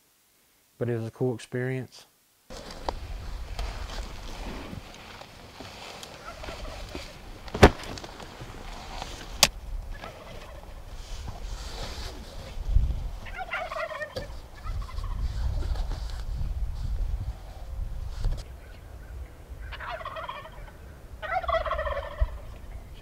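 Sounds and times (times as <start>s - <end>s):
turkey gobbling: 6.2s - 7.2s, 9.9s - 10.8s, 13.2s - 15.2s, 18.6s - 22.8s.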